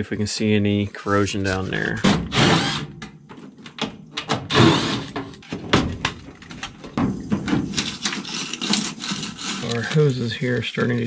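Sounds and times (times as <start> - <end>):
sheet metal knocks and scrapes: 1.9 - 9.4.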